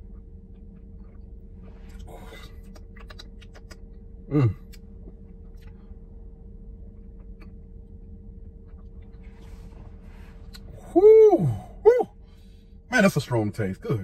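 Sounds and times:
steady hum: 0.0 - 14.0
man grunting: 10.8 - 12.1.

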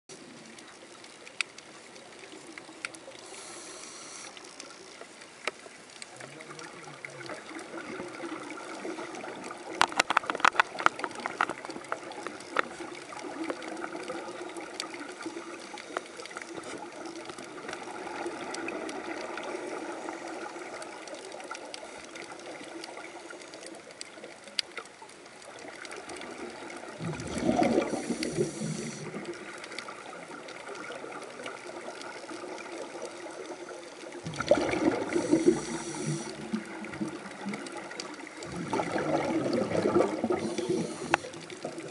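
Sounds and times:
steady underwater hiss: 0.1 - 41.9
exhaust bubbles gurgling: 6.1 - 15.7, 25.6 - 33.5, 34.1 - 41.9
scattered clicks: 9.7 - 12.8.

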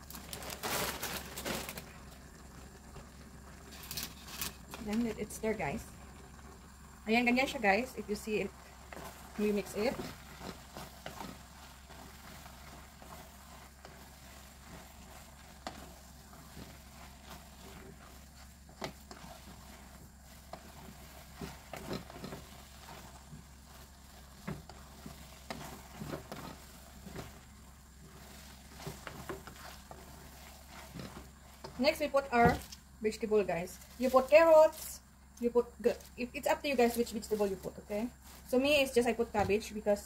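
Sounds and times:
faint sizzle: 0.0 - 40.0
wooden spoon scraping metal pot: 7.1 - 34.9.

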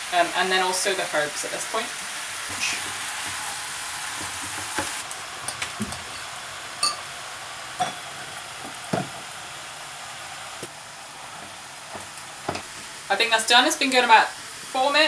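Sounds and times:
greens sizzling in a frying pan: 0.0 - 15.0
wooden spoon knocking on pan: 4.1 - 5.0, 8.9 - 9.2.

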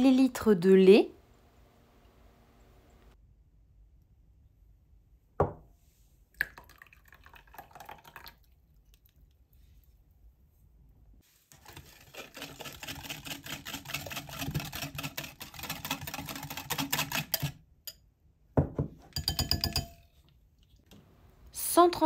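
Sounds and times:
whisk clicking against glass bowl: 12.1 - 17.6, 19.2 - 20.0.

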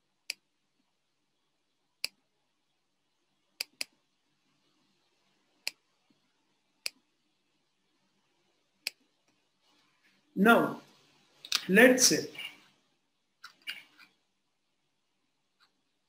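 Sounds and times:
computer mouse clicking: 3.6 - 4.0.

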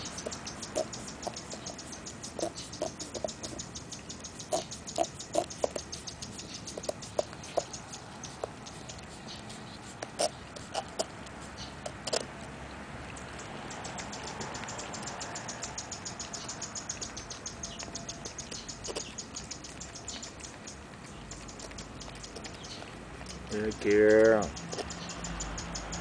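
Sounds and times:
dog licking from paper cup: 0.1 - 12.5, 16.2 - 23.8.

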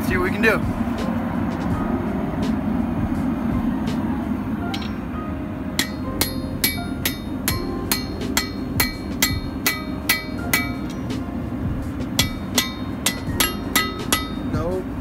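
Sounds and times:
low rumble: 0.0 - 15.0
hammer striking metal on anvil: 4.7 - 5.2, 5.8 - 11.2, 12.0 - 14.8.

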